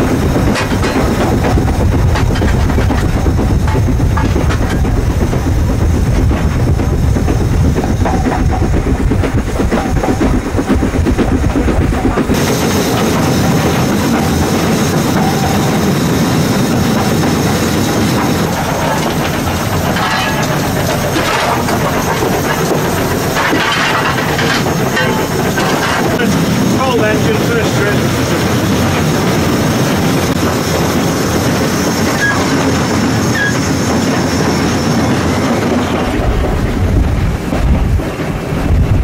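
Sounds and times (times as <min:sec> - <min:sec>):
steam locomotive clatter: 0:00.0 - 0:39.0
steam hiss: 0:12.2 - 0:36.7.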